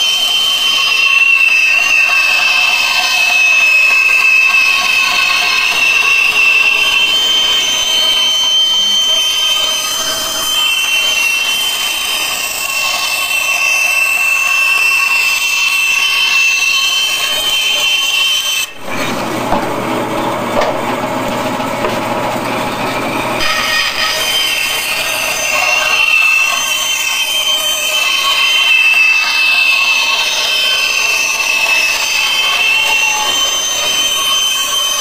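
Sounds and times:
band saw cutting plywood: 0:00.0 - 0:35.0.

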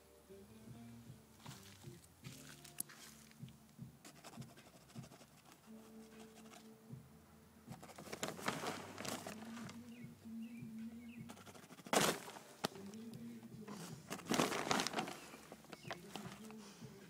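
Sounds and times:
plastic tarp rustling: 0:07.9 - 0:09.9, 0:11.9 - 0:12.8, 0:13.7 - 0:16.6.

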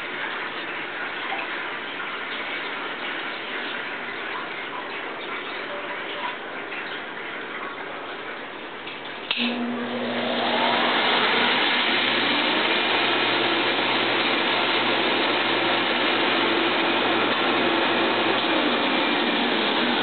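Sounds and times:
suction pump whine and hum: 0:09.0 - 0:20.0.

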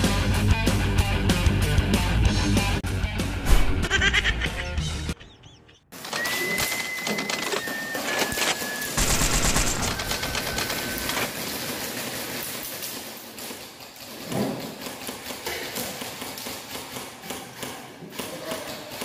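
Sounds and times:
airsoft guns firing bursts: 0:08.8 - 0:12.5.

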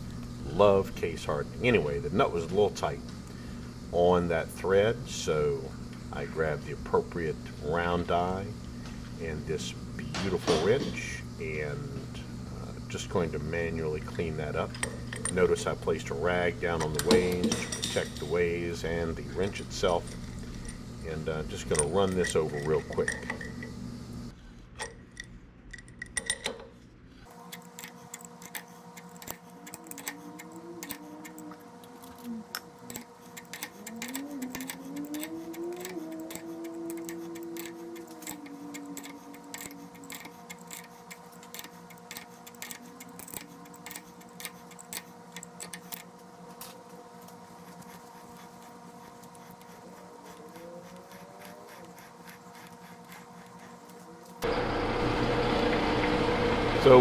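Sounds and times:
faint steady hum: 0:00.0 - 0:57.0
die ratchet clicking: 0:32.9 - 0:46.1.

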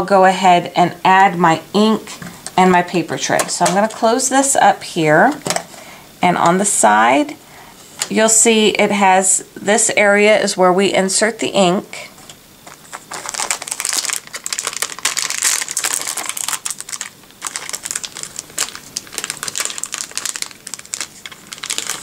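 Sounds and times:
plastic wrapper crinkling: 0:12.2 - 0:22.0.

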